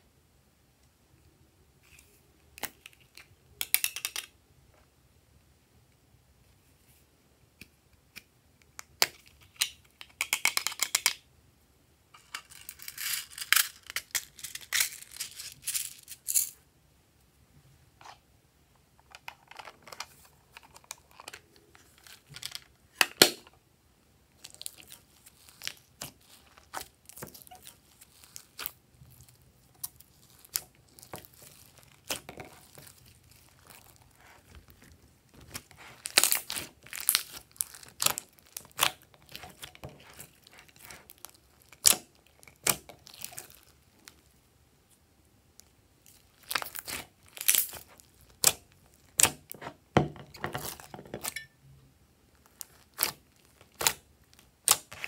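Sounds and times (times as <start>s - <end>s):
slime crackling and popping: 24.4s - 44.3s, 45.6s - 49.6s, 52.4s - 55.0s.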